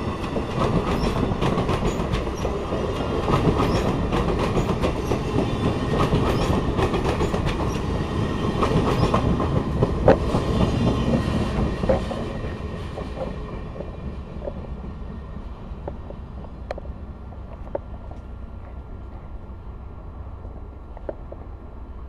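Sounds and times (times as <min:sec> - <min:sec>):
train cars rumbling past: 0:00.0 - 0:22.0
wheels clicking over rail joints: 0:00.2 - 0:14.9.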